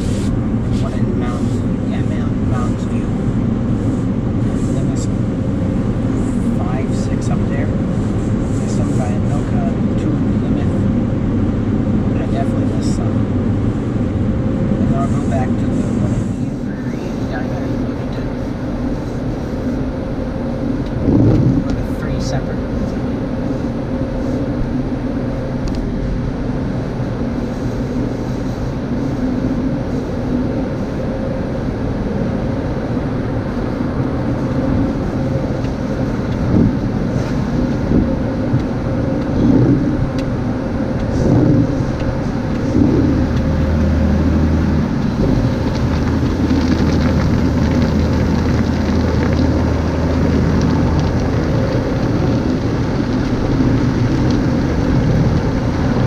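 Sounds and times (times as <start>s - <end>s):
water spraying: 0.0s - 2.9s, 32.1s - 56.0s
deep steady hum: 0.0s - 56.0s
steady machine hum: 0.0s - 56.0s.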